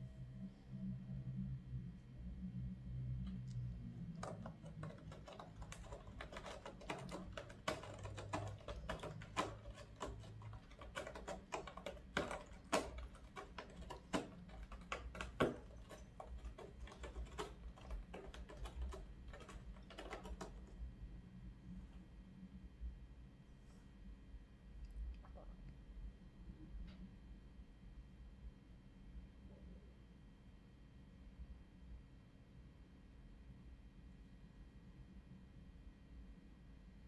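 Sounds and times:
cat claws scratching floor: 4.1s - 20.7s.

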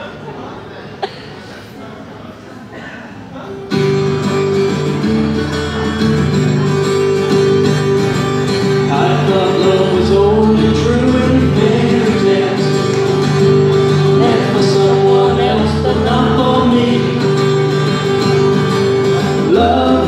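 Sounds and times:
solo acoustic guitar: 3.4s - 20.0s.

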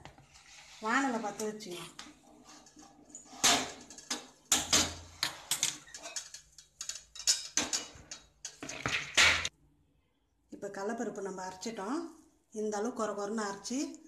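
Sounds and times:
metal pan and ladle clanking: 2.5s - 9.5s.

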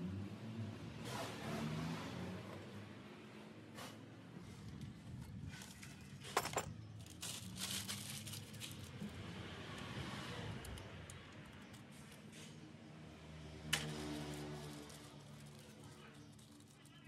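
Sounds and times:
rustling of hand work: 3.7s - 9.3s.

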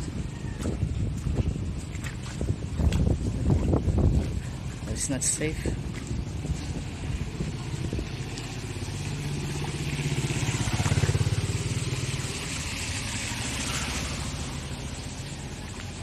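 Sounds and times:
motorcycle engine passing: 7.3s - 15.6s
tyres hissing through water: 8.4s - 16.0s.

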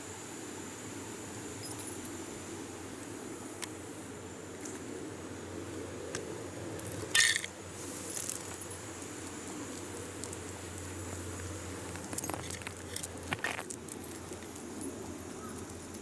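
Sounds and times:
light ice clinks: 6.8s - 8.8s, 11.9s - 16.0s.

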